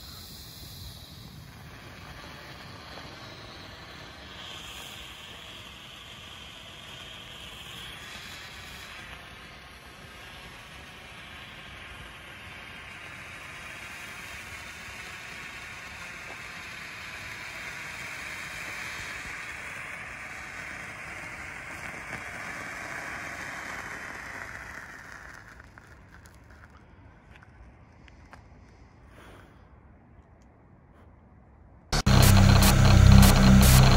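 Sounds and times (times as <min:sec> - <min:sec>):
flare burning with hiss: 0:00.0 - 0:26.5.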